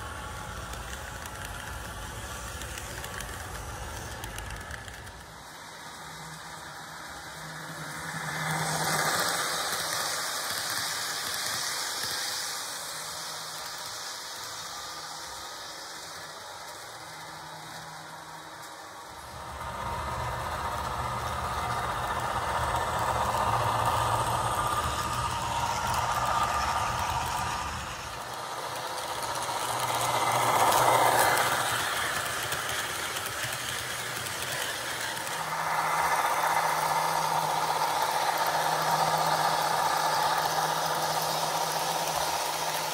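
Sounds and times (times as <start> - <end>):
model train diesel engine sound: 0.0 - 42.9.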